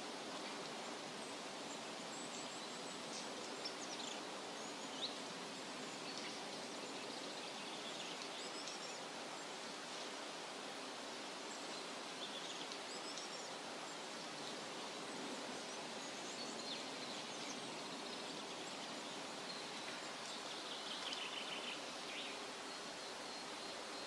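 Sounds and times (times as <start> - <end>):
faint bird chirps: 15.2 - 24.0.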